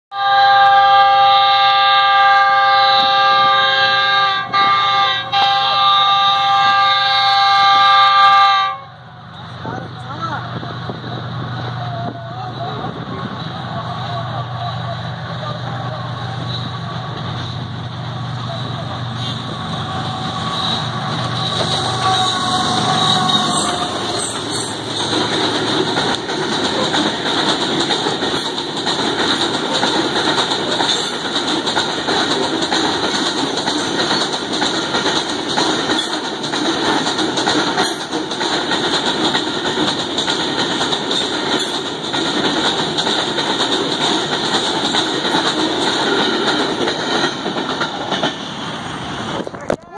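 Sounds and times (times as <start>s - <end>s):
locomotive engine rumble: 8.9s - 49.9s
train wheels clattering over rail joints: 19.0s - 49.6s.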